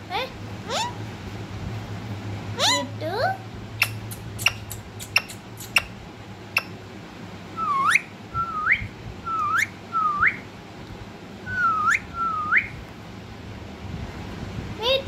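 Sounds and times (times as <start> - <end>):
short upward-sweeping whistles: 7.6 - 10.4, 11.5 - 12.8.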